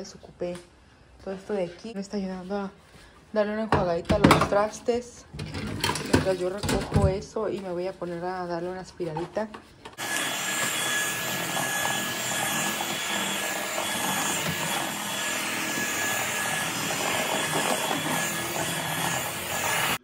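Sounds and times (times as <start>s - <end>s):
stick vacuum whining: 10.0s - 20.0s.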